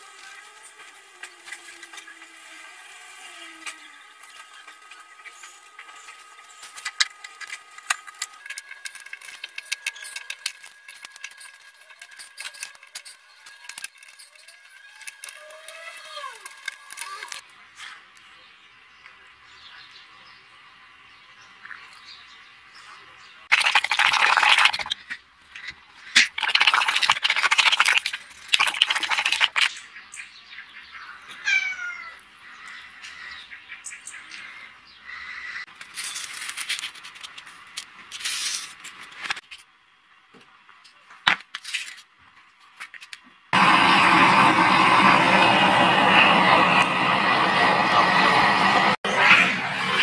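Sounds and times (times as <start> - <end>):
forge flame roaring: 43.5 - 50.0.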